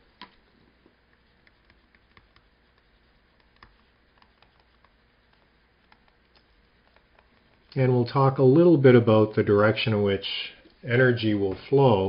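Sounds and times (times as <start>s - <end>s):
stylus tapping on tablet: 1.1s - 7.6s.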